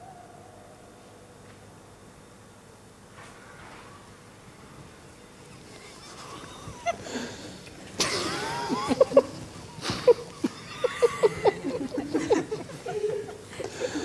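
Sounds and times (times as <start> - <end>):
people chuckling and snickering: 5.5 - 14.0.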